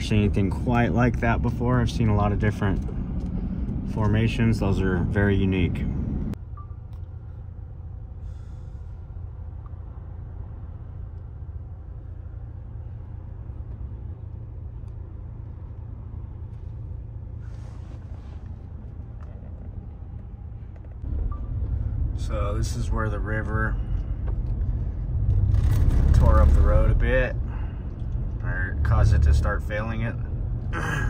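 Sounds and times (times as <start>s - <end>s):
car cabin rumble: 13.4s - 22.6s.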